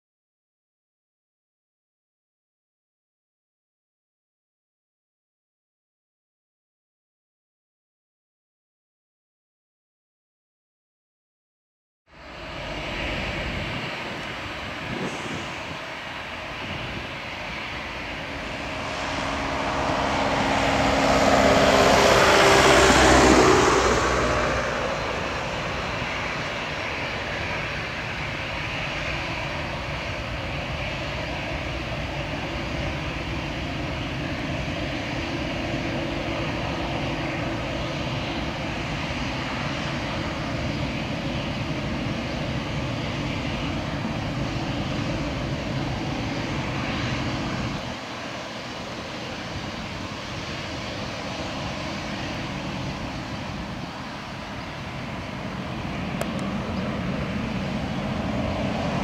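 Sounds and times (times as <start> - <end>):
jet engines running: 12.1 - 59.0
passing sound with falling pitch: 17.7 - 27.8.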